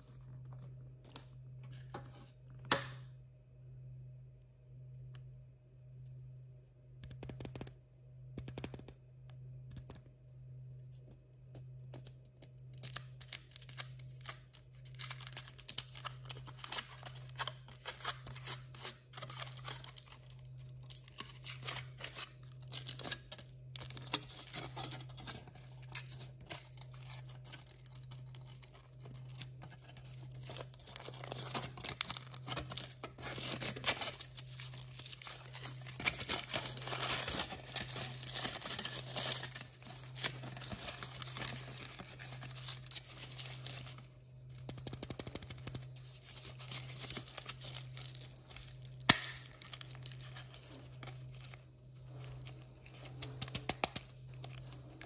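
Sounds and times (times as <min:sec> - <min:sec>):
foil wrapper crinkling and tearing: 0:12.0 - 0:55.0.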